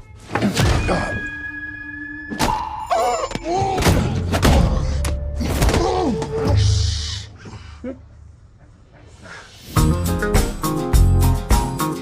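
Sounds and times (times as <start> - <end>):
trailer music: 9.7 - 12.0.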